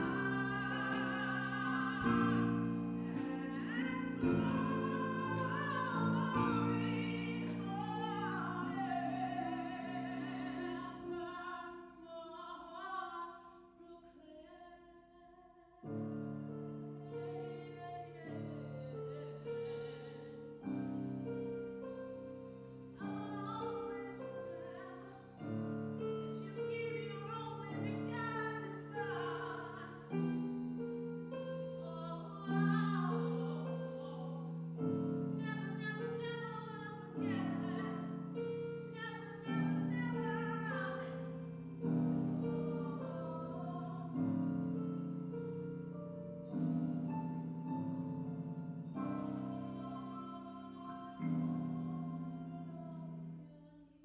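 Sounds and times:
piano chords: 0.0s - 13.5s, 15.8s - 54.0s
person singing: 0.0s - 16.0s, 26.3s - 30.5s, 31.4s - 44.4s.

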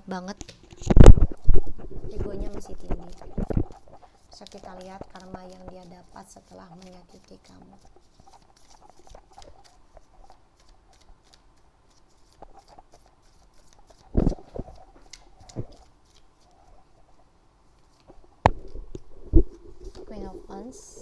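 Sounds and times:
cards shuffling: 0.4s - 16.6s.

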